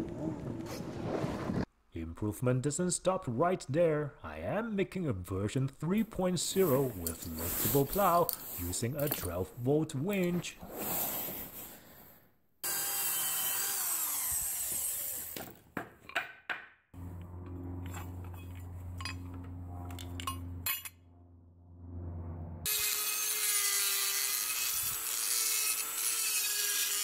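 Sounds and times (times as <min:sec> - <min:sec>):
rotary tool grinding steel: 0:12.6 - 0:15.5, 0:22.7 - 0:27.0
steady low hum: 0:17.0 - 0:22.7.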